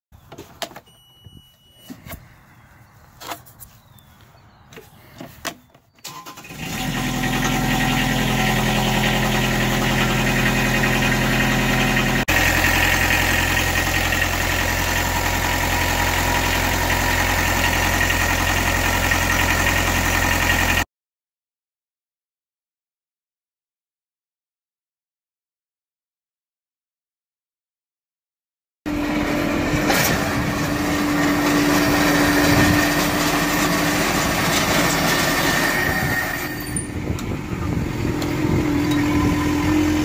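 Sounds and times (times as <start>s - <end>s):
diesel mower engine running: 4.2s - 20.8s, 28.9s - 40.0s.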